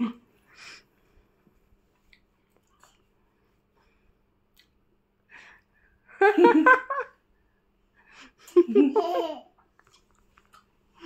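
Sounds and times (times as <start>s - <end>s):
person giggling: 8.4s - 9.5s.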